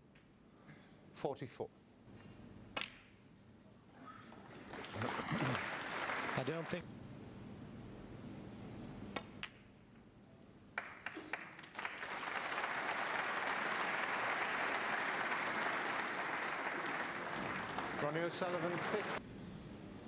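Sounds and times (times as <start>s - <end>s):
crowd applause: 4.3s - 6.8s, 10.8s - 19.2s.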